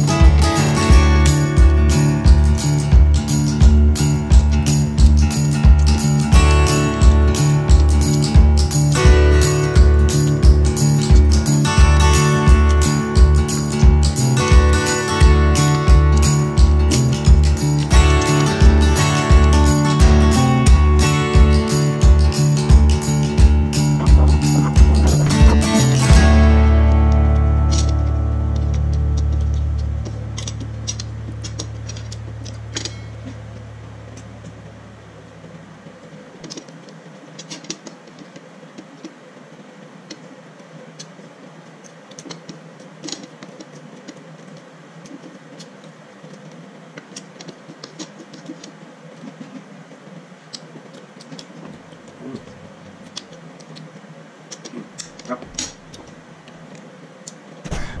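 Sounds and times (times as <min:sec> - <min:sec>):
background music: 0:00.0 - 0:32.9.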